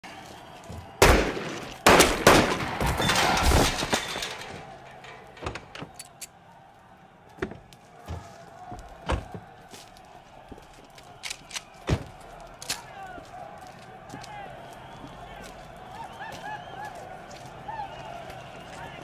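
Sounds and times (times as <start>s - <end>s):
cracks and rattling: 0.4s - 6.3s, 7.3s - 14.3s
loud sharp bangs: 0.8s - 5.9s.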